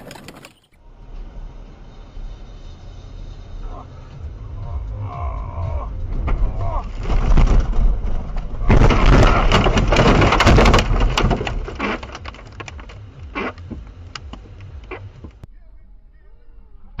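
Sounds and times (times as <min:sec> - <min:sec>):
scattered clicks and knocks: 0:06.1 - 0:15.4
car crashing into snow: 0:06.2 - 0:12.6.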